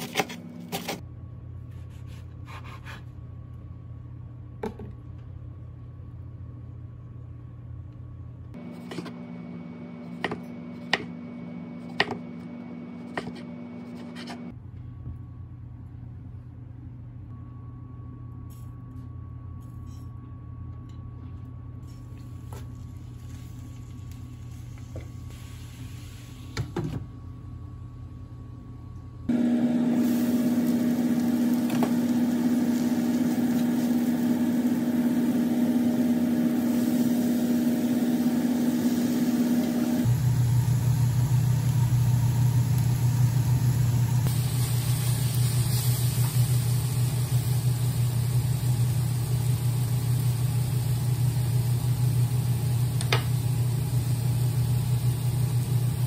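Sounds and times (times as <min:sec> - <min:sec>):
low steady hum: 0:00.0 - 0:56.0
greens sizzling in hot skillet: 0:29.4 - 0:40.9, 0:44.3 - 0:52.2.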